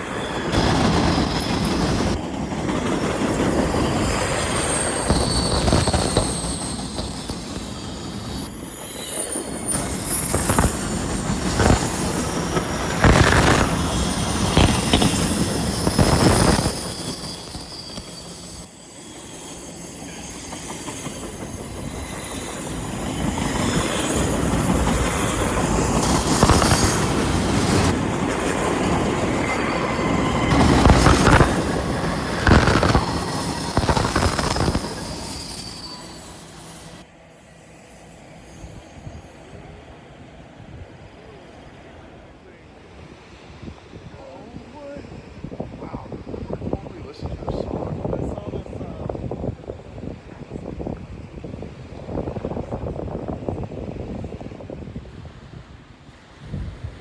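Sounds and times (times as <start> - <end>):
high-pitched wheel squeal: 0.0 - 2.2, 3.8 - 28.0, 29.3 - 39.7
train wheels clattering on rails: 0.0 - 19.2, 20.8 - 36.4.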